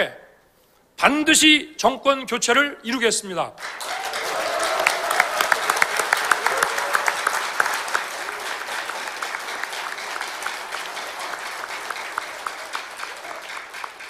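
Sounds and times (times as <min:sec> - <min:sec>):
audience applauding: 0:03.6 - 0:14.0.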